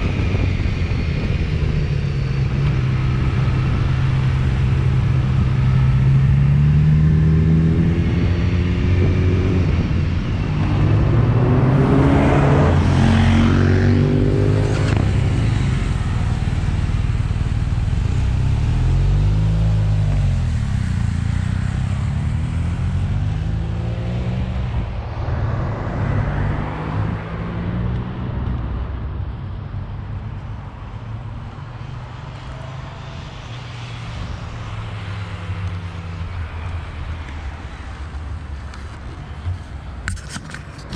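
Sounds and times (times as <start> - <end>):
motorcycle engine revving: 0.0 - 24.8
wind and road noise: 0.0 - 40.9.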